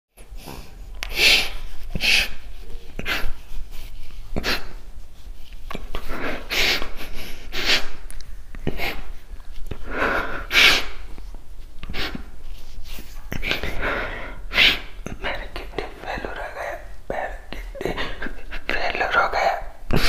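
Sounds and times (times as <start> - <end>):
man crying and sniffling: 5.8 - 8.0, 8.6 - 9.2, 13.0 - 18.7.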